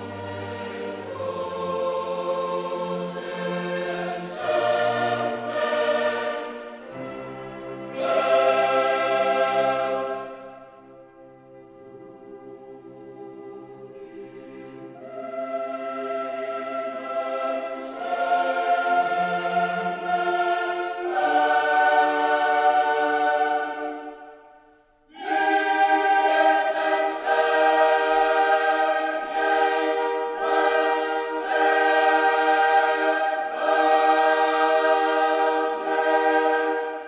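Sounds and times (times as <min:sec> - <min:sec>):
choir singing held chords: 0:00.0 - 0:37.0.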